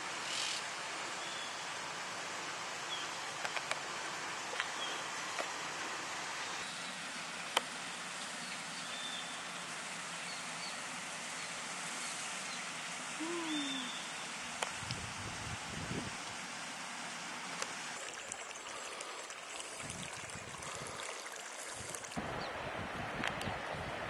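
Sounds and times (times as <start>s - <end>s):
running water rushing: 0.0s - 24.0s
high bird chirps: 13.4s - 14.2s.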